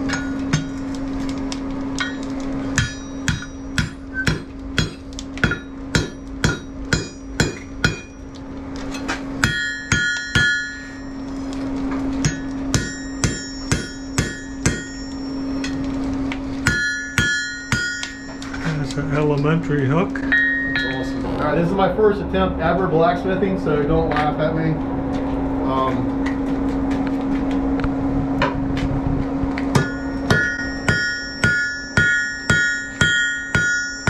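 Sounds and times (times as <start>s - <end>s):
anvil ringing: 0.0s - 0.8s, 2.0s - 8.4s, 9.4s - 11.2s, 12.2s - 15.8s, 16.6s - 18.8s, 20.2s - 21.2s, 29.7s - 34.0s
hammer striking iron on anvil: 0.0s - 0.8s, 2.0s - 8.2s, 9.0s - 11.2s, 12.2s - 15.8s, 16.6s - 18.6s, 20.3s - 20.9s, 29.7s - 34.0s
steady low hum: 0.0s - 34.0s.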